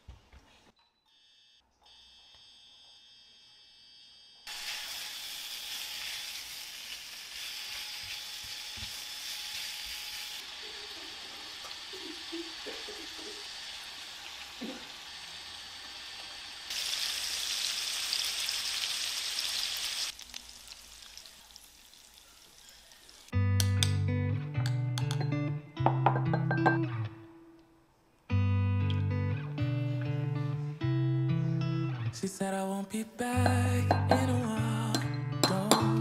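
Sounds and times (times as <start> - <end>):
food sizzling in frying pan: 4.5 - 23.3.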